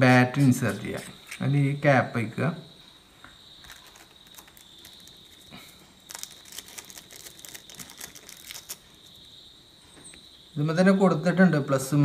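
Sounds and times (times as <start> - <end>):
plastic packet crinkling: 3.6 - 9.3.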